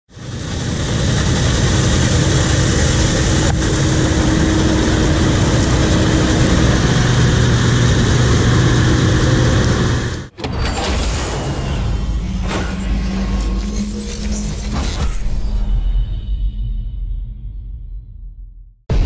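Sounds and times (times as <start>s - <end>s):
combine harvester droning: 0.1s - 14.7s.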